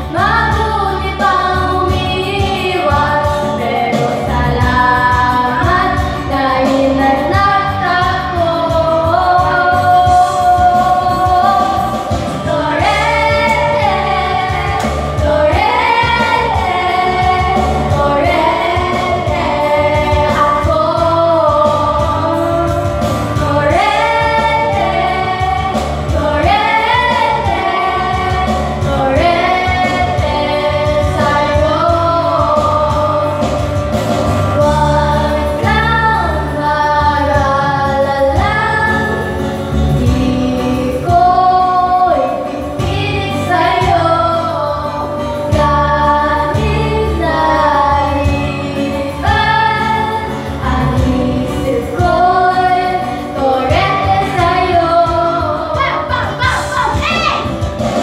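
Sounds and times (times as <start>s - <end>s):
karaoke backing track: 0.0s - 58.0s
women singing into microphones: 0.0s - 58.0s.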